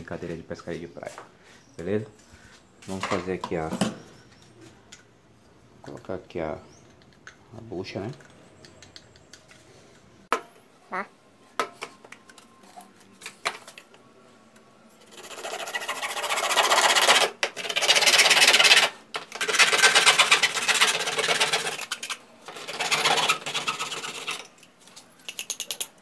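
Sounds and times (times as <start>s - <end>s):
hand saw cutting plastic pipe: 15.1s - 24.5s.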